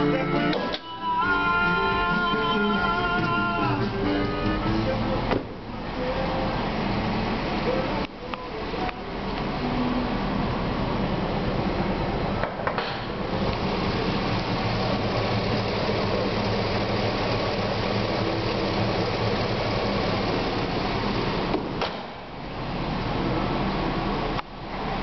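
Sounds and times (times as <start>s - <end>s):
engine idling: 1.7s - 25.0s.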